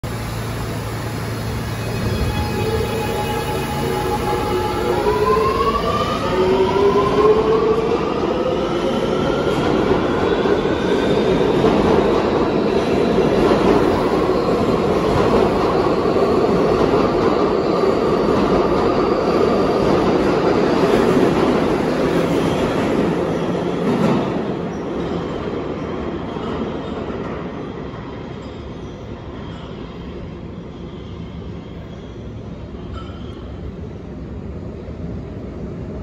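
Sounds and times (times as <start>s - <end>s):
train cars rumbling on rails: 0.1s - 28.4s.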